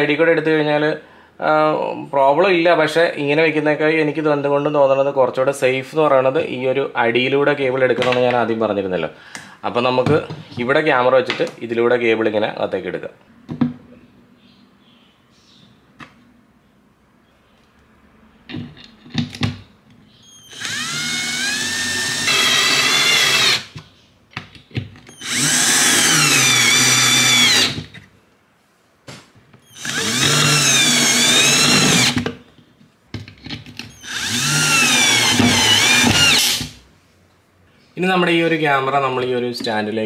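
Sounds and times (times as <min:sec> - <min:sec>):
cordless drill driving screws: 0:20.4 - 0:23.8, 0:25.1 - 0:27.8, 0:29.7 - 0:32.2, 0:33.9 - 0:36.8.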